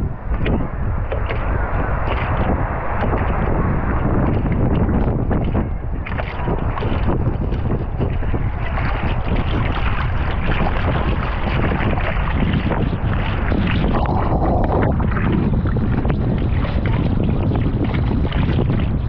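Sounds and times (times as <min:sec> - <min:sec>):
wind buffeting microphone: 0:00.0 - 0:19.0
water splashing against surfboard: 0:00.3 - 0:19.0.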